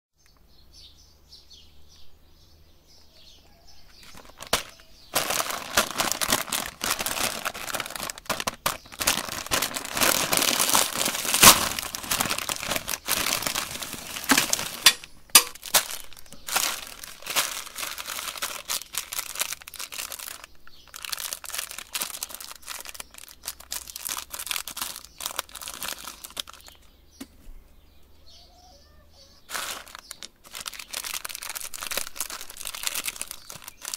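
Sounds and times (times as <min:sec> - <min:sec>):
faint bird chirps: 0:00.2 - 0:05.2, 0:24.8 - 0:31.1
plastic wrappers crinkling: 0:03.9 - 0:26.9, 0:29.4 - 0:33.9.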